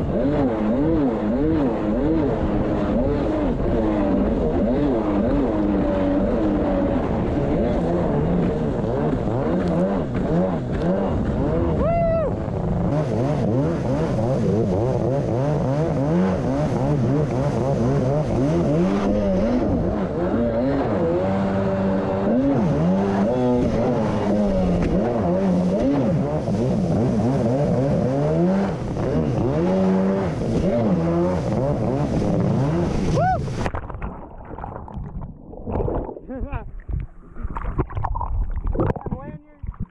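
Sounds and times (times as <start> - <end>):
jet ski engine revving: 0.0 - 33.7
rush of water spray: 21.9 - 34.6.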